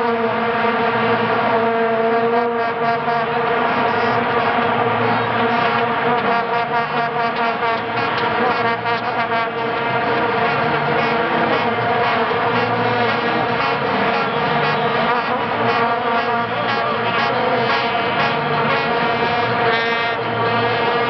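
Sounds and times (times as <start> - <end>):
massed vuvuzelas droning: 0.0 - 21.0.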